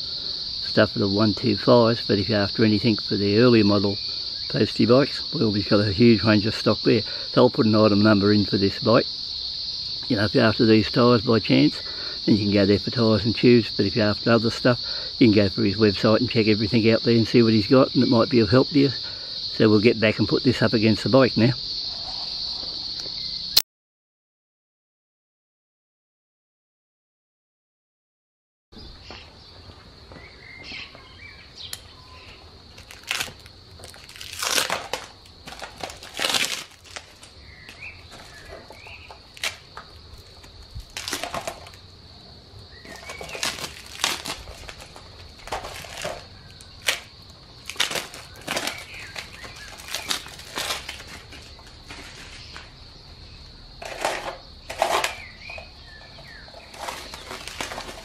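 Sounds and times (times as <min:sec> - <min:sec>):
steady high-pitched hiss: 0:00.0 - 0:23.5
plastic wrapping crinkling: 0:32.7 - 0:41.8, 0:42.8 - 0:52.6, 0:56.2 - 0:58.0.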